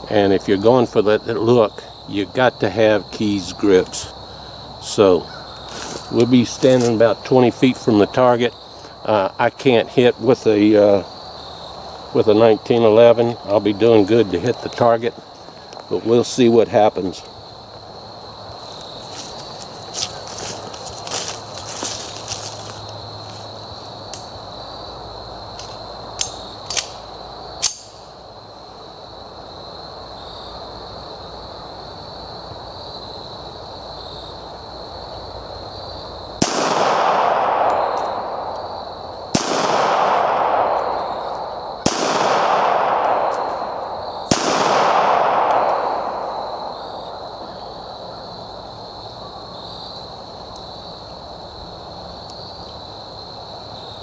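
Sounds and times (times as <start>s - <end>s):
pistol shots: 36.4s - 38.6s, 39.3s - 46.7s.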